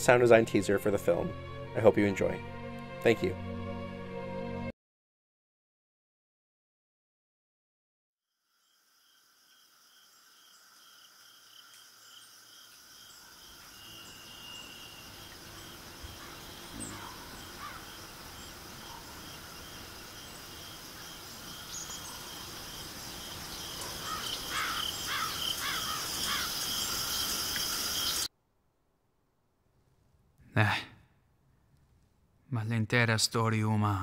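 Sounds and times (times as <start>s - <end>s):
crickets and insects chirring: 8.4s - 28.3s
short bird calls: 13.7s - 19.2s, 23.7s - 27.2s.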